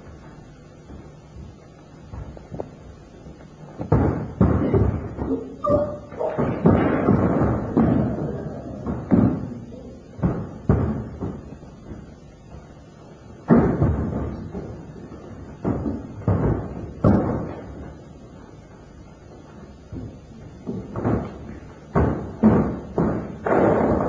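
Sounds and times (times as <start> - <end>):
bare feet stamping on stage: 0.0 - 24.0.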